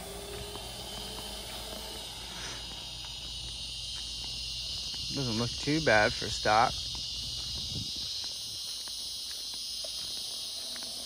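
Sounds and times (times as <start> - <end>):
distant electric motor whine: 0.0 - 5.3
insect chorus: 0.0 - 11.0.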